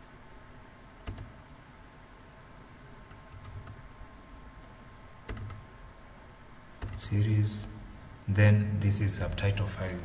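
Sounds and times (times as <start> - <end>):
quiet room hiss: 0.0 - 10.0
computer mouse clicking: 1.0 - 1.4, 3.0 - 3.8, 5.3 - 5.7, 6.8 - 7.0.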